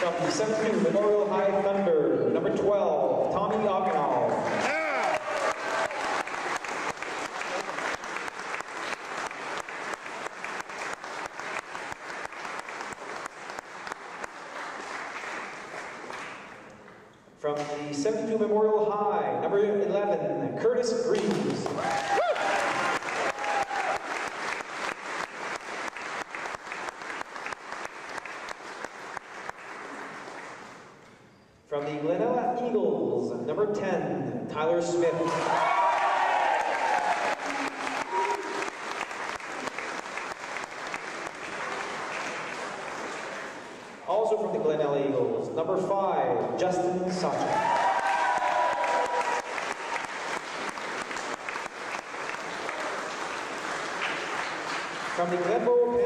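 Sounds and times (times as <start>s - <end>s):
crowd applauding: 0.0s - 1.8s, 3.8s - 16.7s, 21.2s - 31.0s, 35.3s - 44.0s, 47.4s - 56.0s
close sharp claps: 3.8s - 17.0s, 21.1s - 31.0s, 35.2s - 44.0s, 47.6s - 55.7s.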